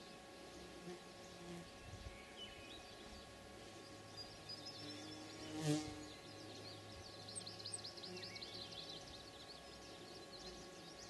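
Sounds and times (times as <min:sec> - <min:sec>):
insect buzzing past: 0:03.5 - 0:06.6.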